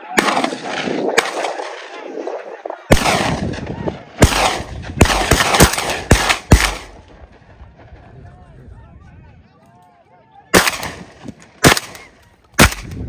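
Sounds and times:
gunshots: 0.0s - 7.8s, 10.5s - 13.0s.

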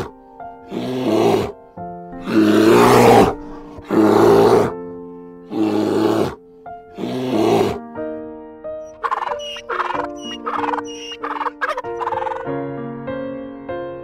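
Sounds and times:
bear growling: 0.0s - 1.6s, 2.2s - 4.9s, 5.5s - 7.8s
background music with held notes: 0.0s - 14.0s.

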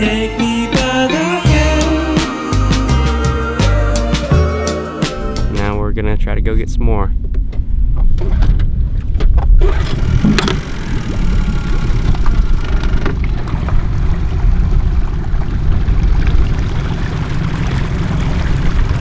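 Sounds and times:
engine running with low rumble: 7.2s - 19.0s.

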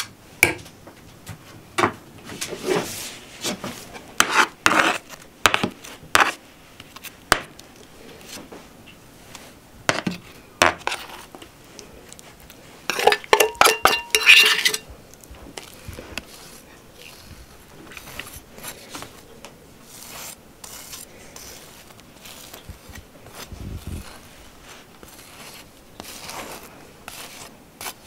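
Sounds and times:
knife scraping metal tray: 4.2s - 5.1s, 12.9s - 14.8s
spoon scraping metal bowl: 12.9s - 14.9s.

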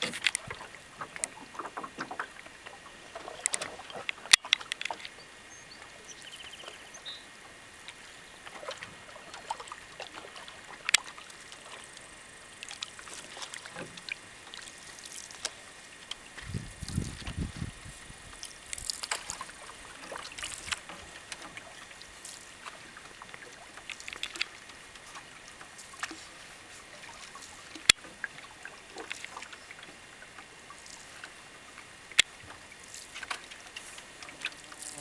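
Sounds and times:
paddle strokes in water: 0.0s - 35.0s
small splashes and drips: 7.7s - 35.0s.

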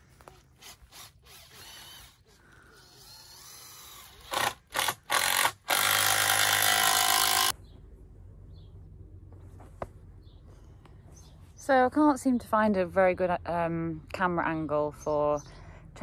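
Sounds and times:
cordless drill into timber: 0.3s - 7.5s.

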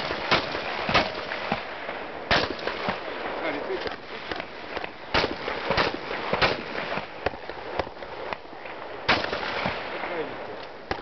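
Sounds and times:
shotgun shots: 0.0s - 3.3s, 4.2s - 8.0s, 9.1s - 10.3s.

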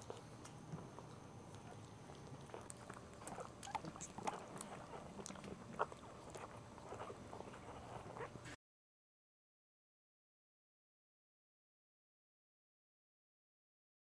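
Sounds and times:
puppy squeaking and whimpering: 2.5s - 8.6s.

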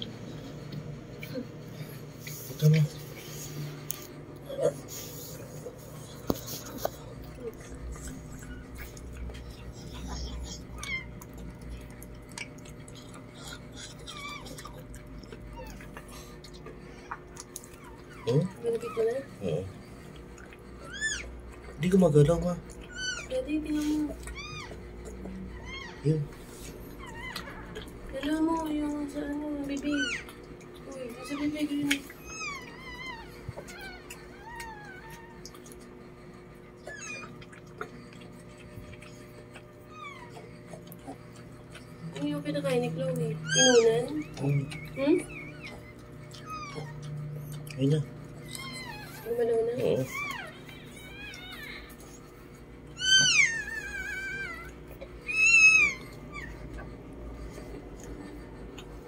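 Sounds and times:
puppy crying: 4.4s - 58.8s
puppy squeaking: 20.8s - 21.3s, 22.8s - 27.8s, 29.9s - 30.4s, 31.1s - 35.6s, 36.8s - 37.6s, 42.7s - 47.6s, 48.4s - 51.9s, 53.0s - 56.6s.

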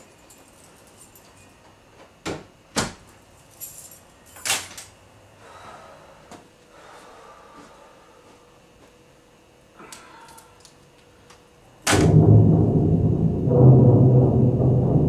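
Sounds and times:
keys jingling: 0.0s - 1.6s, 3.3s - 4.6s.

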